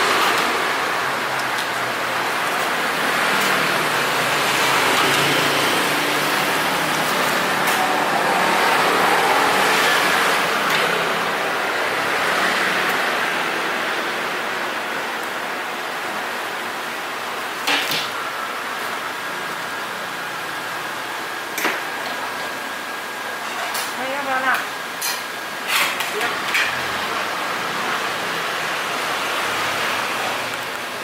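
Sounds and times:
road traffic passing: 0.0 - 17.4.

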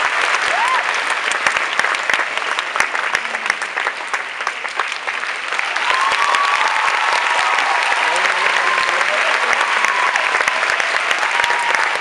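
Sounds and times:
audience applauding: 0.0 - 12.0
crowd whooping: 0.4 - 0.9, 5.6 - 12.0.

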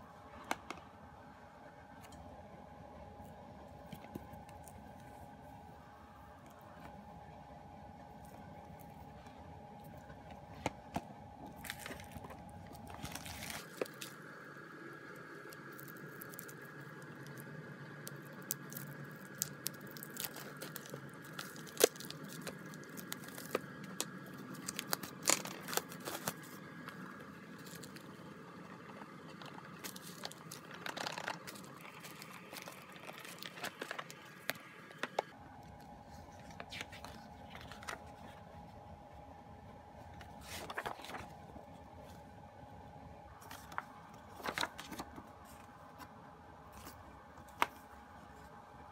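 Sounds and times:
shrink wrap crinkling and tearing: 11.4 - 14.4, 15.1 - 38.4, 40.2 - 41.5, 43.4 - 45.7.

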